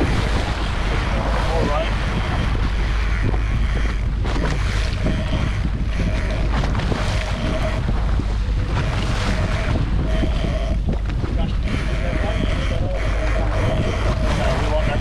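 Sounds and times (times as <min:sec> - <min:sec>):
heavy low rumble: 0:00.0 - 0:15.0
water rushing past boat hull: 0:00.0 - 0:15.0
wind buffeting microphone: 0:00.0 - 0:15.0.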